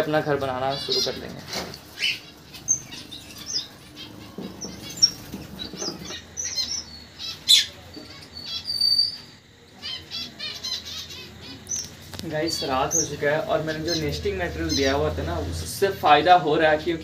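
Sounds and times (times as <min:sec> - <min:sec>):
small birds chirping: 0:00.0 - 0:17.0
wings flapping: 0:04.2 - 0:06.2.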